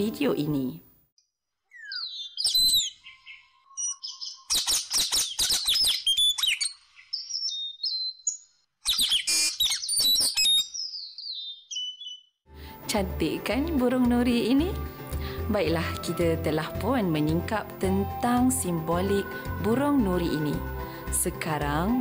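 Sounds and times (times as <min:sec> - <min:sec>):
parrot chirping and screeching: 0:01.7 - 0:08.1, 0:08.8 - 0:12.3.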